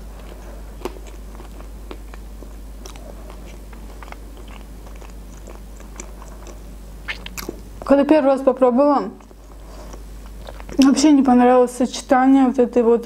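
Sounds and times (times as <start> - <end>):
chewing with wet mouth clicks: 0.2 - 7.9, 9.2 - 11.0.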